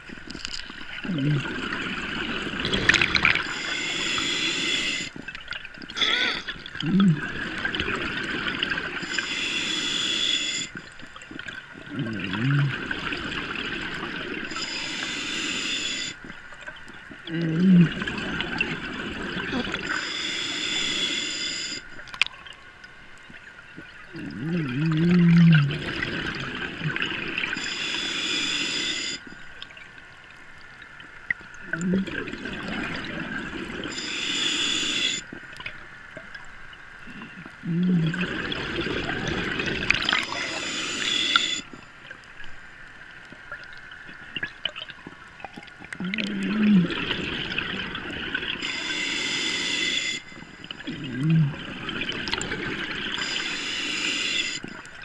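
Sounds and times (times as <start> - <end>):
exhaled bubbles rumbling: 0.0 - 4.2, 4.9 - 9.2, 10.8 - 14.6, 16.2 - 20.0, 23.2 - 27.6, 31.3 - 33.9, 35.3 - 40.6, 43.5 - 48.9, 50.6 - 53.5
regulator inhale hiss: 3.4 - 5.2, 9.0 - 11.0, 14.5 - 16.2, 19.9 - 21.9, 27.5 - 29.4, 33.9 - 35.3, 40.2 - 41.7, 48.6 - 50.8, 53.1 - 54.9.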